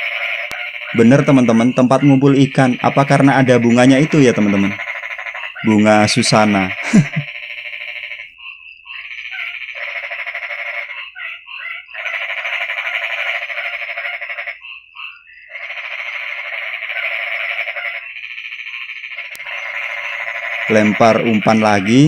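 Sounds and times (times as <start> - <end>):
chorus of frogs calling: 0.0 - 22.0.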